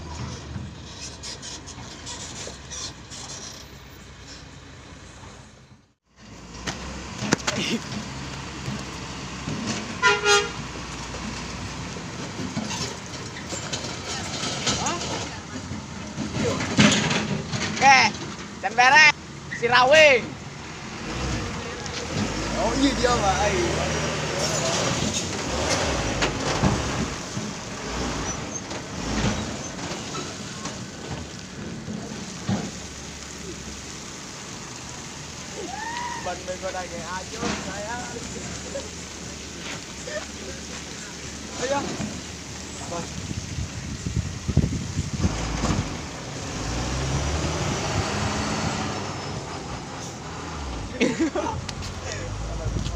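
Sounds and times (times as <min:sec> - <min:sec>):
dump truck engine hum: 0:00.0 - 0:52.9
truck horn toot: 0:10.0 - 0:10.6
diesel truck engine running: 0:37.8 - 0:52.9
tyres crunching on gravel: 0:44.6 - 0:52.9.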